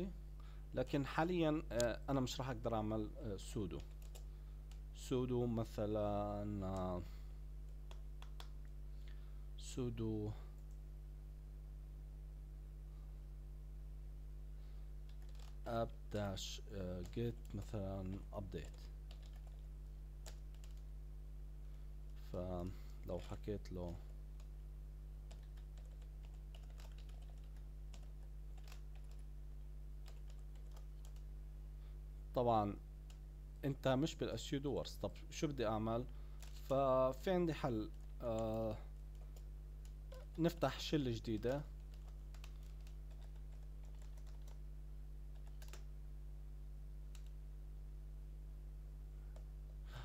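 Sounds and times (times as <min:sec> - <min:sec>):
low electrical hum: 0:00.0 - 0:50.0
keyboard typing: 0:03.8 - 0:04.8, 0:07.7 - 0:08.6, 0:15.0 - 0:15.8, 0:17.0 - 0:20.9, 0:25.3 - 0:29.3, 0:30.0 - 0:31.3, 0:37.9 - 0:40.5, 0:41.4 - 0:44.6, 0:45.3 - 0:45.9.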